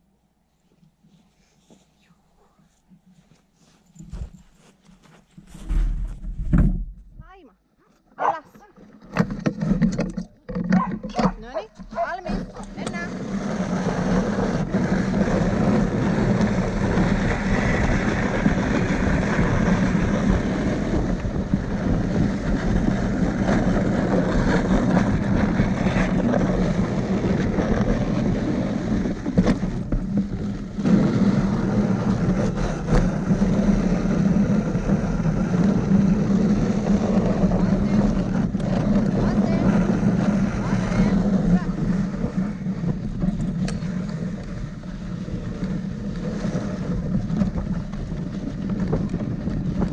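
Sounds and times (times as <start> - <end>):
sled rushing over snow: 3.1 - 7.3, 8.2 - 49.9
wind on microphone: 10.7 - 49.9.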